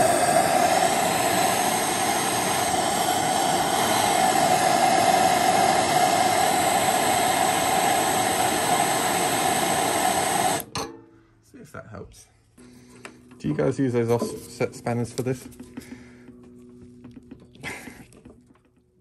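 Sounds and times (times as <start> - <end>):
blowtorch hissing: 0.0 - 10.7, 17.6 - 18.2.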